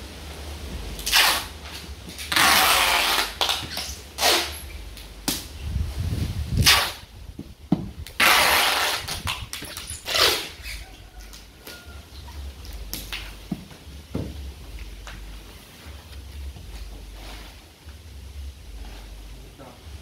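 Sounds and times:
packing tape pulled off roll: 1.0 - 5.5, 6.6 - 7.1, 8.0 - 11.8.

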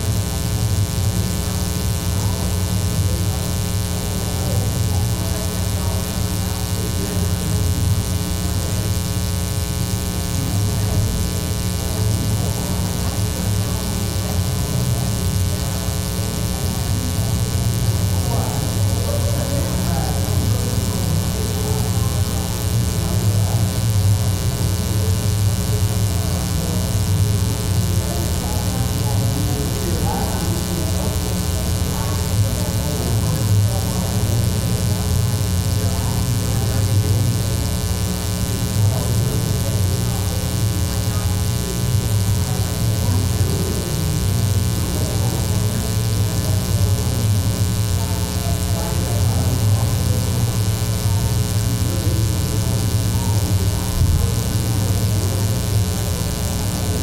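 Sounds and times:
electrical mains hum: 0.0 - 57.0
faint indistinct voices: 0.0 - 57.0.

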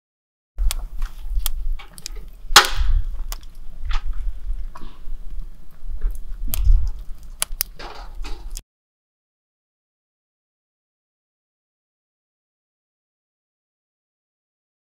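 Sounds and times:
campfire crackling and popping: 0.6 - 8.6.

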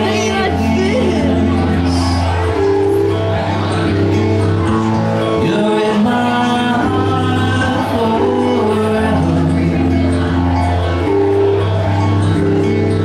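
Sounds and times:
man singing: 0.0 - 2.3, 5.2 - 10.7
acoustic rock band playing: 0.0 - 13.0.

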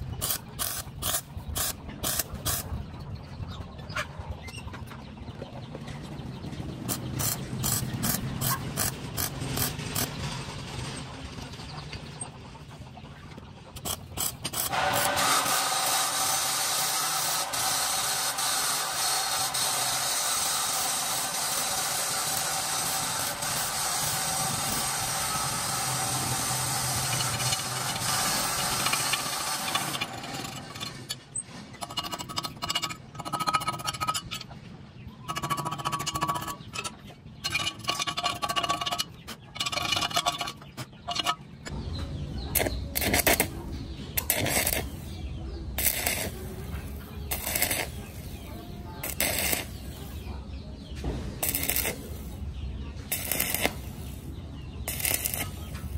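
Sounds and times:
welding arc crackling: 0.0 - 2.7, 6.8 - 10.2, 13.8 - 30.9, 42.5 - 43.6, 44.2 - 45.2, 45.8 - 50.3, 51.4 - 52.4, 53.0 - 55.9.

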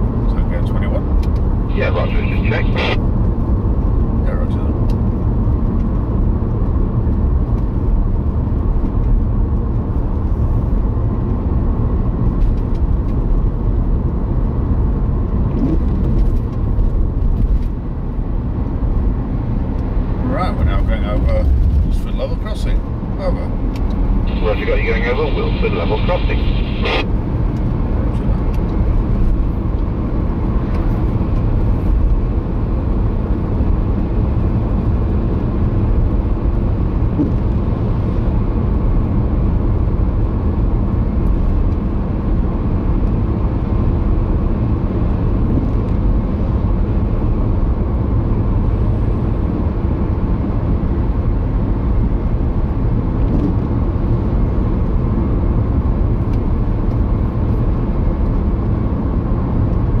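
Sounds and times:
car road and engine noise: 0.0 - 60.0.

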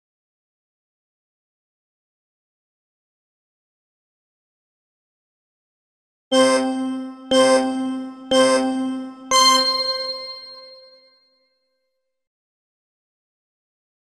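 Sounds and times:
boxing timer bell dings: 6.4 - 11.0.

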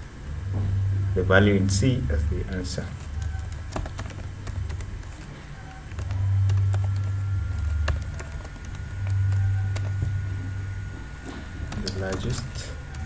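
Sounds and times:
low hum: 0.0 - 13.0
keyboard keys clicking: 2.5 - 10.2, 11.6 - 13.0.

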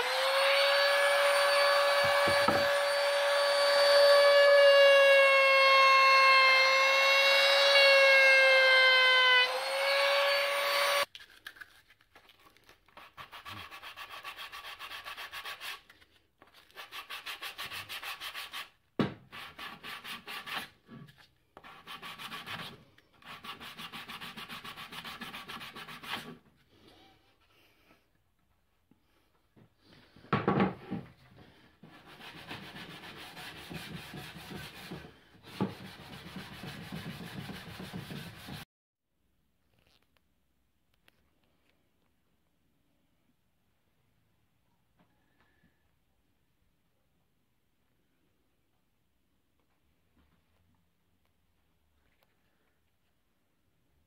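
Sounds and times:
electric router whining: 0.0 - 11.0
sanding block rubbing plywood: 31.8 - 38.6.

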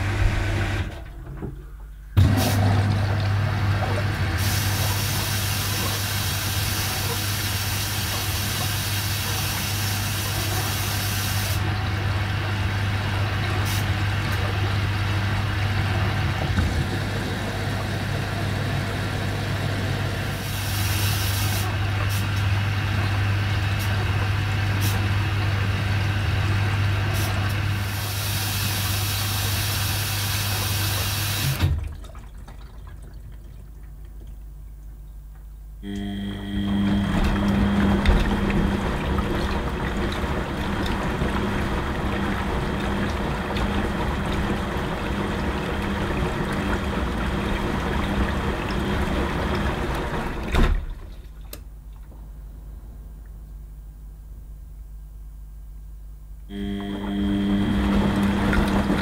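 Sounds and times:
washing machine humming: 0.0 - 59.0
water rushing: 36.6 - 51.2, 56.6 - 59.0.

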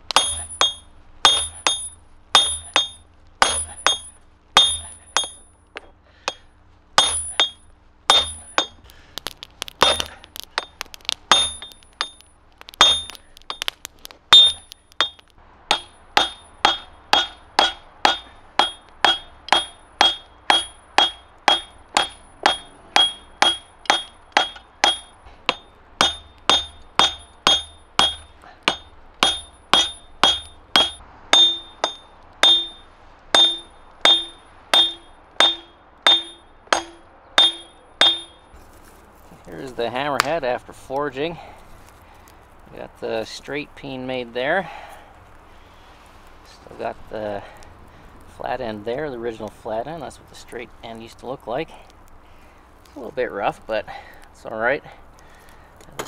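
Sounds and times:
hammer striking hot steel on anvil: 0.0 - 38.5.

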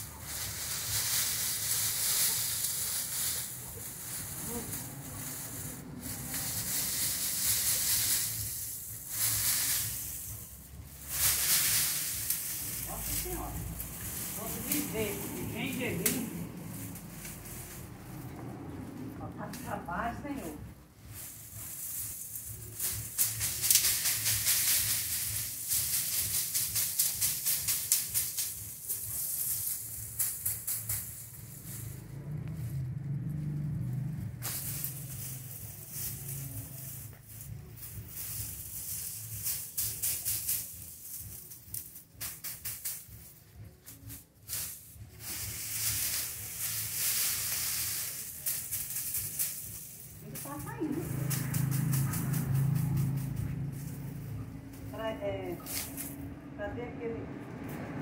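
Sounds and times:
dried plants rustling and rattling: 0.0 - 58.0.

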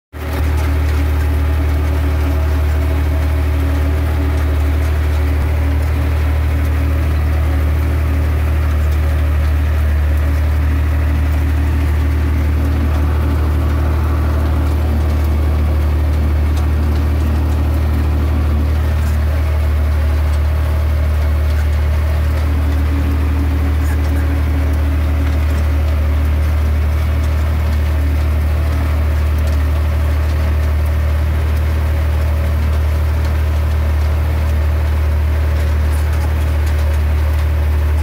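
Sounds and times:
tractor engine droning: 0.2 - 38.0.

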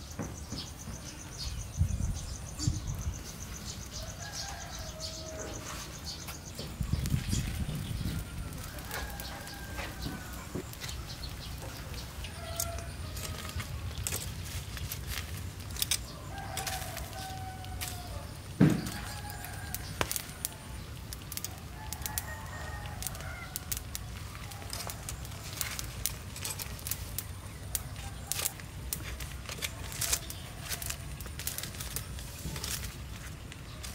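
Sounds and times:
roosters crowing: 3.5 - 33.9
dull thump: 18.6 - 19.0.

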